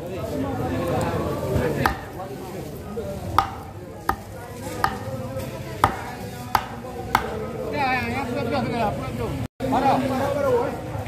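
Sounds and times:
knife chopping on wooden board: 1.8s - 2.2s, 3.4s - 5.2s, 5.8s - 7.4s.

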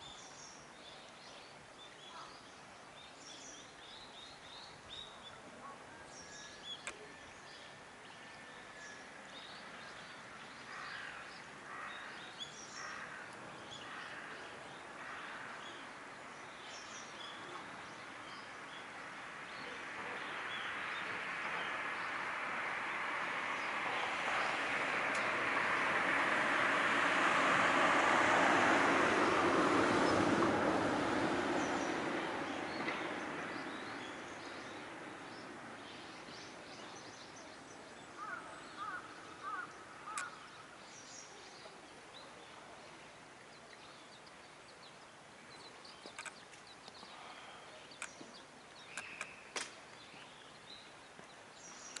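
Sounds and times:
passing vehicle: 16.8s - 41.2s
small birds chirping: 31.6s - 52.0s
sharp clicks: 46.1s - 47.0s.

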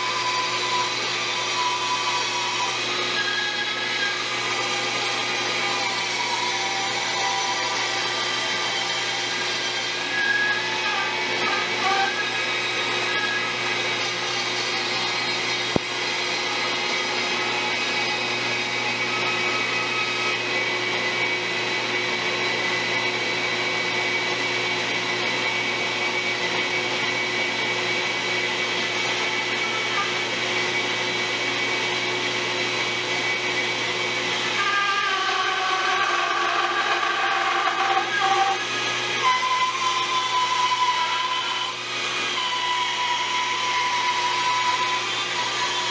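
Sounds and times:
bandsaw and vacuum drone: 0.0s - 45.9s.

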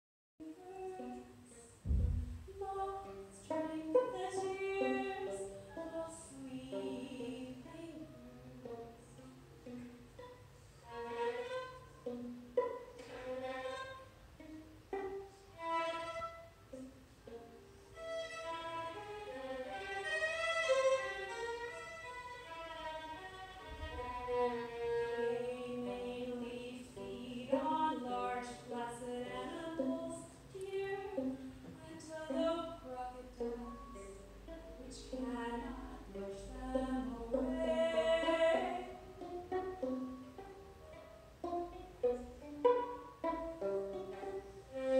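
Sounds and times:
woman singing: 0.4s - 1.7s, 2.5s - 9.3s, 24.0s - 39.7s
violin: 0.4s - 44.9s
low thump: 1.8s - 2.6s.

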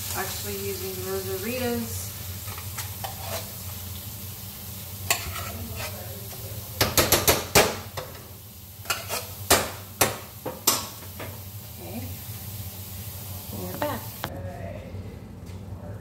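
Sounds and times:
beans sizzling in a pan: 0.0s - 14.3s
metal spoon scraping a can: 2.5s - 3.6s, 5.1s - 6.0s, 8.9s - 9.4s.

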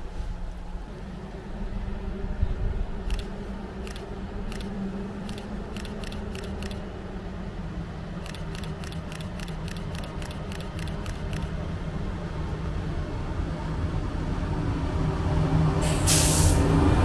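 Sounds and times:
distant electric locomotive hum: 0.0s - 17.0s
sharp ticks: 3.1s - 6.9s, 8.2s - 11.6s.

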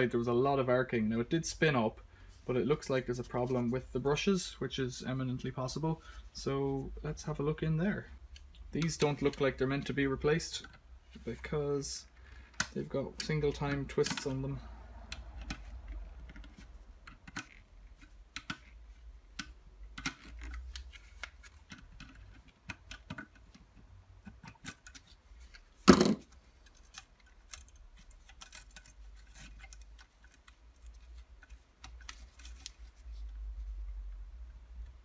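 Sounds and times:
small metallic clicks and scrapes: 12.1s - 35.0s.

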